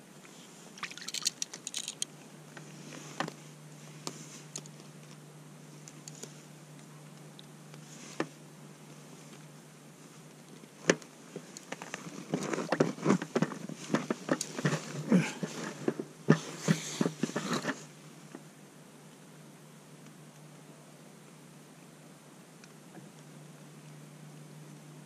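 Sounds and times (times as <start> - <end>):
gear clicks taps and rustling: 0.8 - 2.1.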